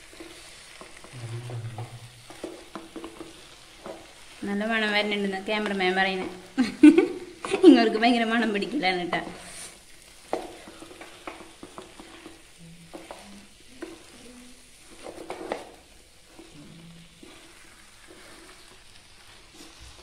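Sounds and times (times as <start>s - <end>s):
faint sizzle: 0.0s - 20.0s
wooden spatula scraping pan: 0.0s - 20.0s.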